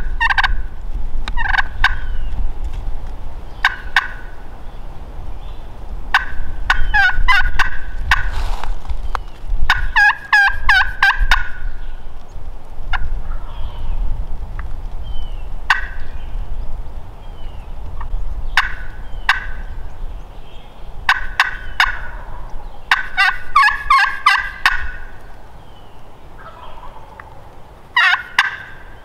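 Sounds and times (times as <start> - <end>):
wind rumbling on microphone: 0.0 - 29.0
turkey gobbling: 0.2 - 0.6, 1.4 - 2.1, 3.6 - 4.4, 6.1 - 8.4, 9.7 - 11.6, 15.7 - 16.0, 18.6 - 19.7, 21.1 - 25.2, 26.4 - 29.0.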